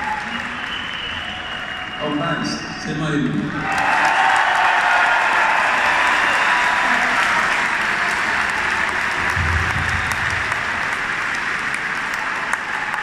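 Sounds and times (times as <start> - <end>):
audience applauding: 0.0 - 2.5, 3.2 - 13.0
low rumble: 9.2 - 11.4.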